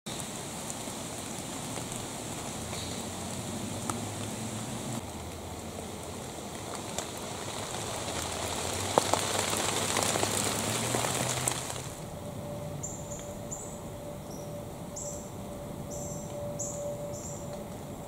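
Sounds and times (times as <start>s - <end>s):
sharp crackles and pops: 0.1s - 12.1s
faint steady hum: 11.9s - 18.0s.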